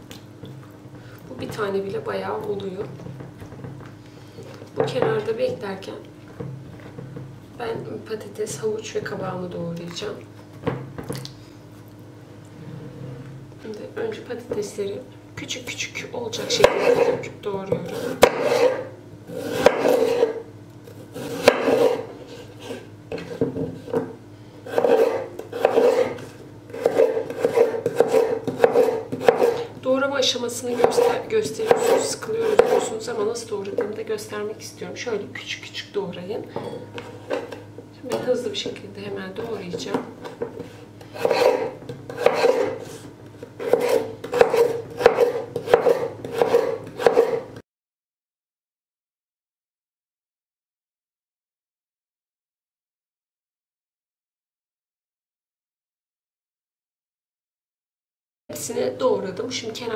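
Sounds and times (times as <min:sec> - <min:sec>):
knife slicing potato: 0:16.4 - 0:24.0, 0:24.7 - 0:29.7, 0:30.6 - 0:33.0, 0:39.5 - 0:47.5.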